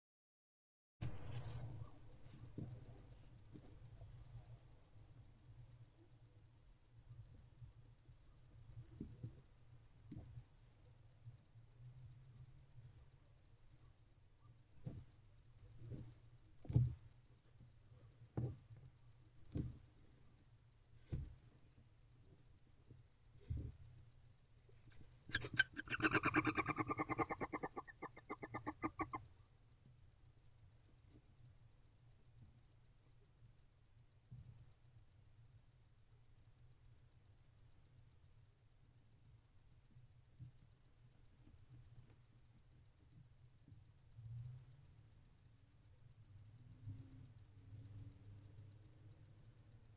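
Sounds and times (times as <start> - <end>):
owl stuttering call: 25.3 - 29.2.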